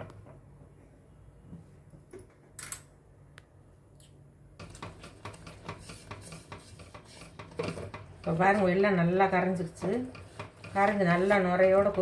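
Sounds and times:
spatula tap: 0:04.6 - 0:08.7, 0:09.6 - 0:12.0
spatula scraping a pan: 0:04.6 - 0:12.0.

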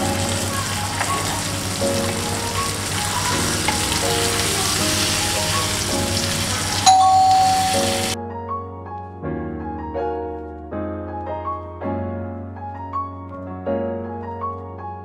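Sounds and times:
chicken sizzling in grill pan: 0:00.0 - 0:08.2.

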